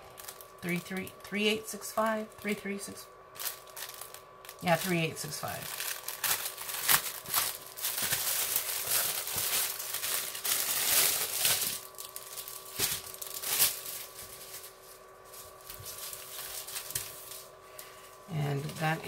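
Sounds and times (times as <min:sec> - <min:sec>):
plastic bags crinkling: 0:00.0 - 0:01.3, 0:03.3 - 0:19.0.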